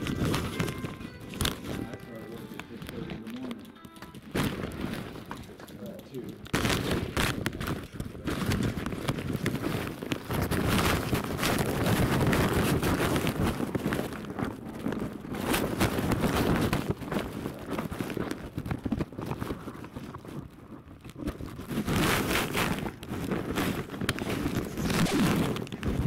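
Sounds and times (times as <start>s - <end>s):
wind rumble on microphone: 0.0s - 2.1s, 6.2s - 26.0s
footsteps: 0.0s - 14.1s
camera rustling and knocking: 0.0s - 26.0s.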